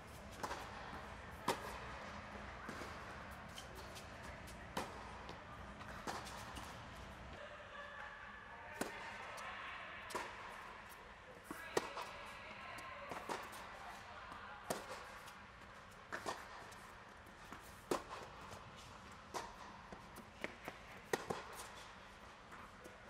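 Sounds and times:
racket striking tennis ball: 0:00.1 - 0:07.3, 0:10.1 - 0:12.4, 0:13.1 - 0:22.0
ball bouncing on hard court: 0:00.3 - 0:05.1.

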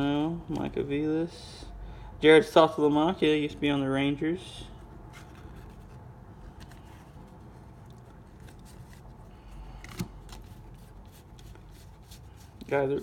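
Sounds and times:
low background hum: 0:00.0 - 0:13.0
trading cards clicking and rustling: 0:05.1 - 0:13.0.

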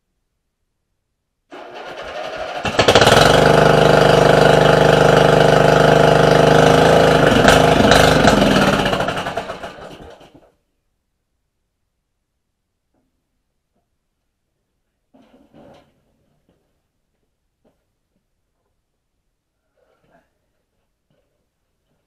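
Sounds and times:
electric starter cranking: 0:01.5 - 0:10.4
engine sputtering to a stop: 0:01.5 - 0:10.4
small gasoline engine running: 0:01.5 - 0:10.4.

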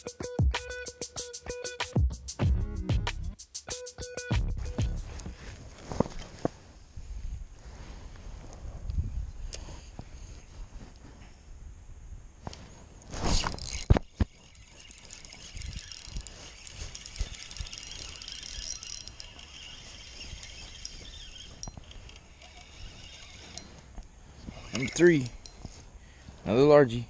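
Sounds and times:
fishing reel ticking whirr: 0:13.4 - 0:25.6.

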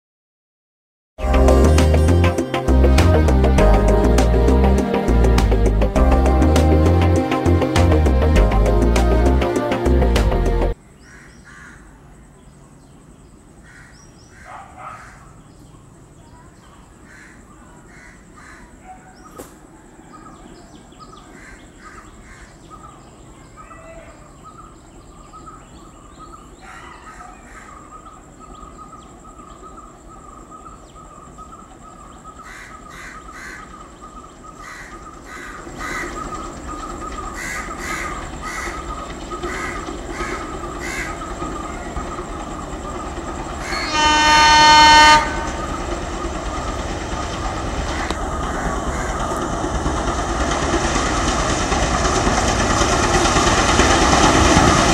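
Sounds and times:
distant diesel locomotive rumble: 0:01.2 - 0:10.8, 0:13.4 - 0:54.9
crows cawing: 0:11.0 - 0:11.9, 0:13.6 - 0:15.3, 0:17.0 - 0:18.8, 0:21.3 - 0:22.5, 0:32.4 - 0:33.8, 0:34.6 - 0:36.4, 0:37.3 - 0:42.0, 0:43.6 - 0:44.4, 0:47.9 - 0:49.3.

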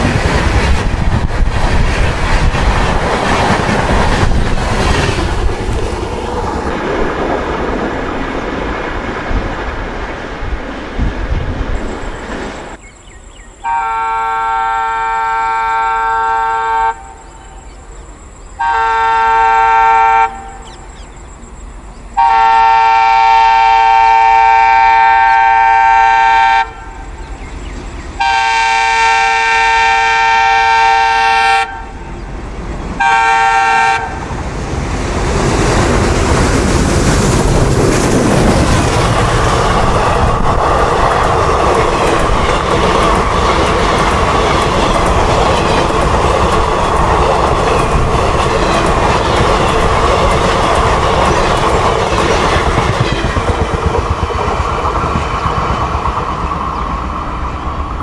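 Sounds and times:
train rumbling past: 0:00.0 - 0:58.0
diesel locomotive horn chord: 0:13.6 - 0:17.2, 0:18.6 - 0:20.8, 0:22.2 - 0:27.1, 0:28.2 - 0:32.1, 0:33.0 - 0:34.3
wheel clatter over rail joints: 0:35.4 - 0:56.5.

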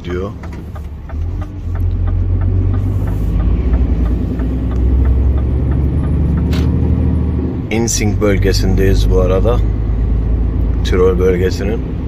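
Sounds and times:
faint regular ticking: 0:00.0 - 0:06.5
diesel engine droning: 0:00.0 - 0:12.0.

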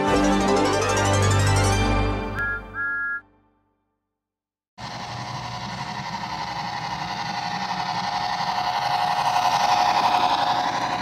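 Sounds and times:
model train motor hum: 0:04.8 - 0:11.0.

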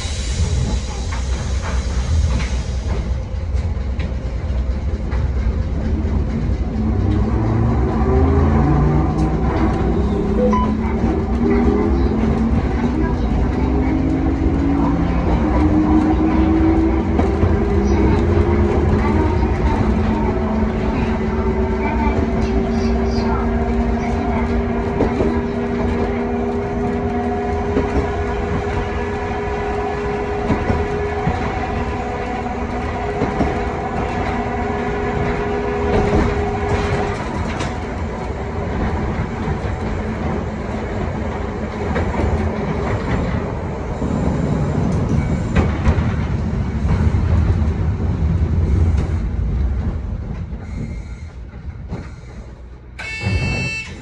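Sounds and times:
tram motor whine: 0:00.0 - 0:54.0
tram running noise: 0:00.0 - 0:54.0.

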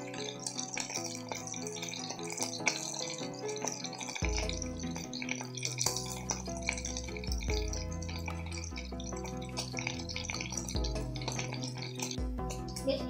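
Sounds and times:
bacon sizzling: 0:00.0 - 0:13.0
background music with bass line: 0:04.2 - 0:13.0.

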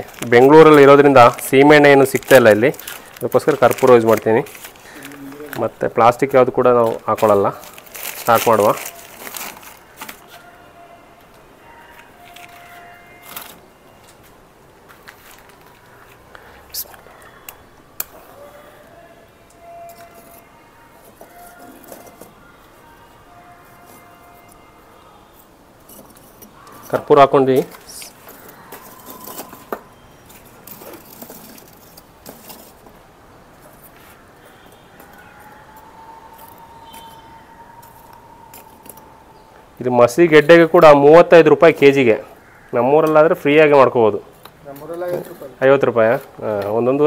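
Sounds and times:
charcoal clinking and scraping: 0:00.0 - 0:05.7, 0:06.6 - 0:10.4, 0:19.6 - 0:22.8, 0:25.8 - 0:39.1
wrapper crinkling: 0:00.0 - 0:10.5, 0:11.9 - 0:13.7, 0:14.9 - 0:17.4, 0:25.9 - 0:33.0.

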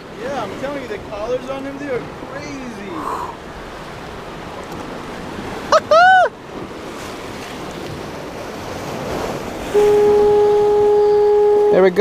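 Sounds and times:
surf washing against rocks: 0:00.0 - 0:12.0
steady low horn: 0:09.7 - 0:12.0
two-part rising and falling call: 0:09.8 - 0:11.8.

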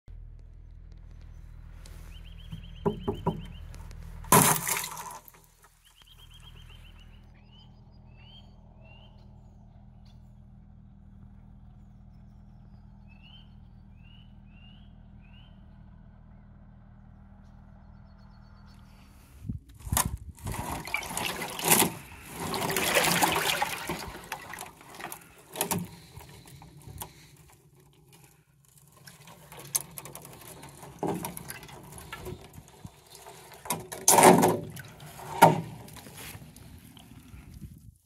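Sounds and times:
low mechanical hum: 0:00.1 - 0:38.0
birds chirping and trilling: 0:01.0 - 0:04.0, 0:05.6 - 0:16.7, 0:17.3 - 0:19.5.

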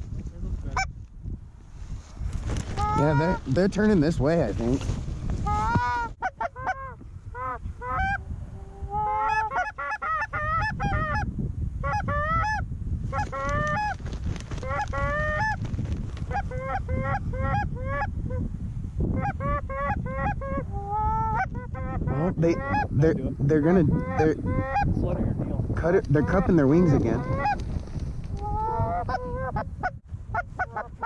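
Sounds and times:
wind rumble on microphone: 0:00.0 - 0:31.0
goose honking and clucking: 0:02.8 - 0:03.4, 0:05.4 - 0:14.0, 0:19.2 - 0:22.9, 0:26.2 - 0:27.6, 0:28.4 - 0:31.0.

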